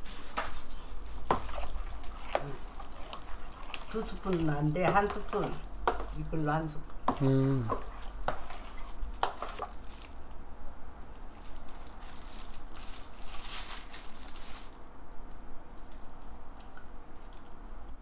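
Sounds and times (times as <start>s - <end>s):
plastic glove crinkling: 0.0s - 14.9s
rustling: 0.0s - 17.6s
liquid sloshing in bowl: 0.3s - 10.2s.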